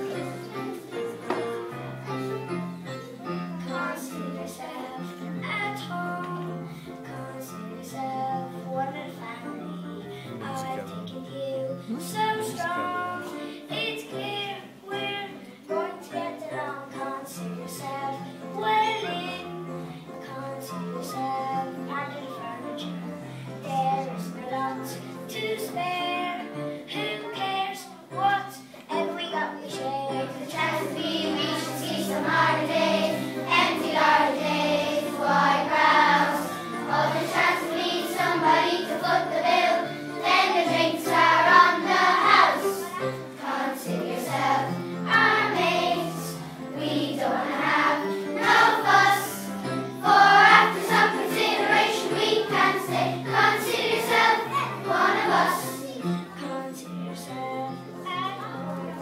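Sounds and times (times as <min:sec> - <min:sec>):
children's choir singing: 0:00.0 - 0:59.0.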